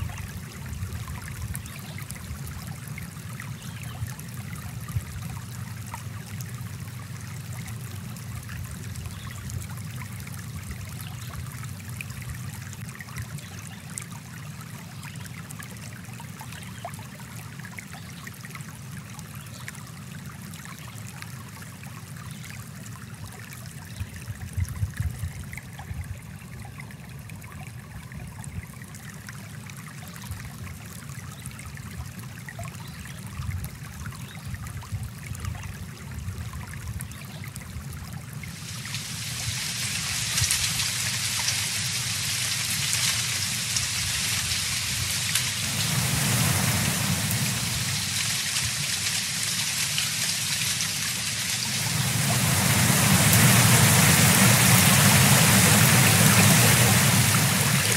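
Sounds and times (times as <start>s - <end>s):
water splashing: 0.0s - 13.2s, 38.2s - 57.9s
brook flowing over rocks: 0.0s - 57.9s.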